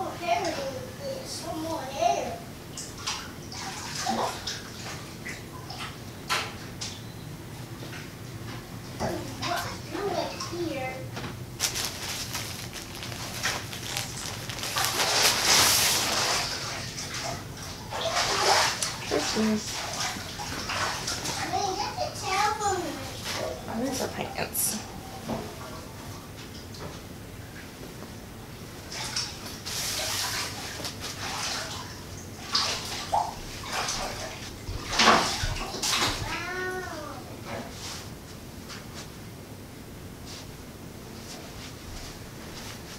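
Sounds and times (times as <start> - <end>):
plastic mailer bag crinkling: 11.6 - 16.2
cloth swishing and rustling: 11.6 - 16.6, 41.2 - 42.9.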